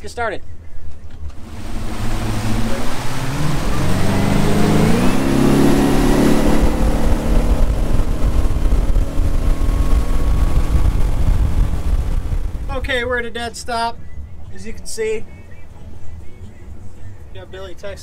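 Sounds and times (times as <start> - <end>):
boat engine accelerating: 1.2 - 13.1
wind rushing: 1.2 - 13.5
churning wake: 1.4 - 13.1.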